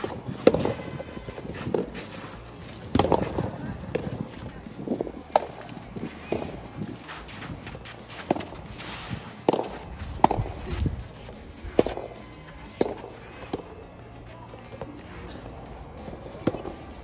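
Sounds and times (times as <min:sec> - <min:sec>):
ball bouncing on court: 0:00.0 - 0:10.8, 0:11.7 - 0:13.7, 0:16.4 - 0:16.8
tennis ball struck by rackets: 0:00.0 - 0:13.8, 0:16.3 - 0:17.0
background music: 0:00.0 - 0:17.0.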